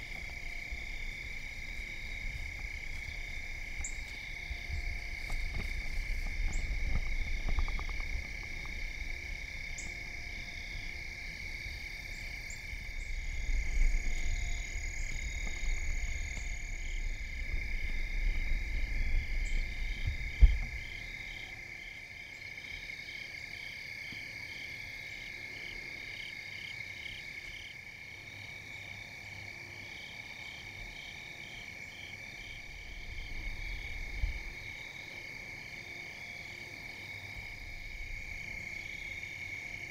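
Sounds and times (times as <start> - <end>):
insects trilling: 0.0 - 39.9
pulsing insect chirp: 0.0 - 39.9
low rumble: 12.6 - 21.3.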